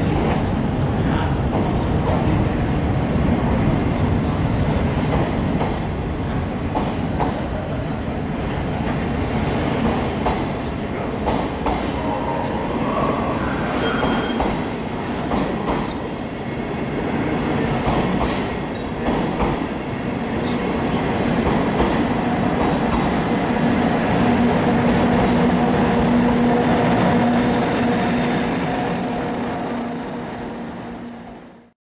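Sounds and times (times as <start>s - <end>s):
train coaches rumbling: 0.0s - 31.7s
high wheel squeals: 13.1s - 14.6s.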